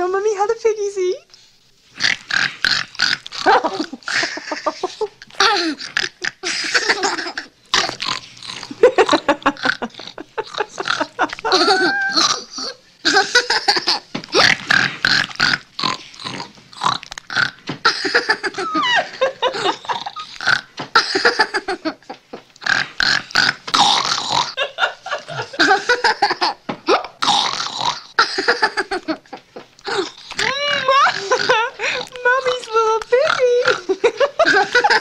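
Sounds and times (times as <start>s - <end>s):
boy imitating pig grunts: 5.4s - 8.0s, 10.0s - 12.8s, 29.8s - 32.7s.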